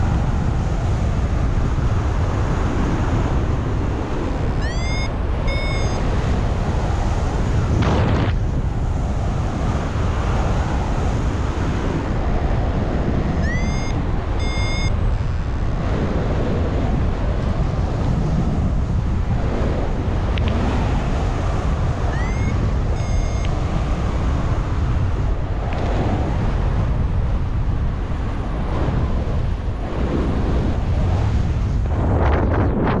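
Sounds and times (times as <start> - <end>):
wind buffeting microphone: 0.0 - 33.0
electronic chirp: 4.6 - 6.0, 13.4 - 15.6, 22.1 - 23.5.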